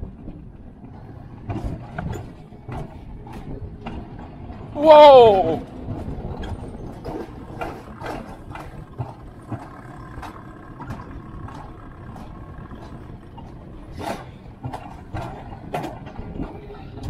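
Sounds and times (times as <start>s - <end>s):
sled wheels rumbling on rails: 0.0s - 17.0s.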